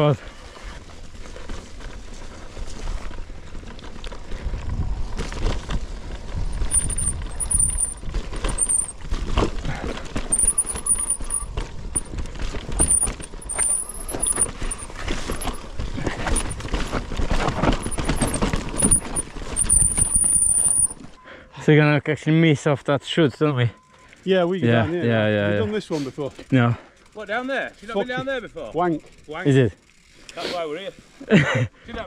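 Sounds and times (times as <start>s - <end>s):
bike tyres rumbling over ground: 0.8s - 20.9s
chain and frame rattling: 6.5s - 21.1s
thin high squeal: 6.6s - 9.0s, 10.3s - 12.1s, 12.8s - 15.7s, 16.3s - 16.6s, 17.8s - 21.1s.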